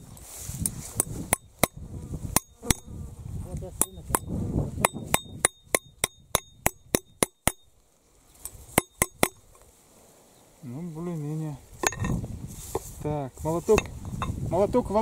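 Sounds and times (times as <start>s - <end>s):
hatchet tapping metal: 1.0s - 1.8s, 2.4s - 2.9s, 3.8s - 7.7s, 8.4s - 9.5s.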